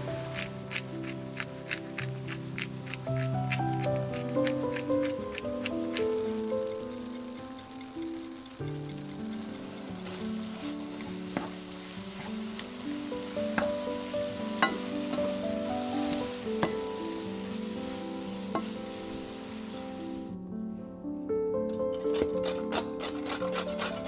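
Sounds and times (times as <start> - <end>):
meat and onions sizzling in a pan: 0.0 - 20.4
spatula knocking against pan: 14.6 - 15.3, 16.6 - 16.9.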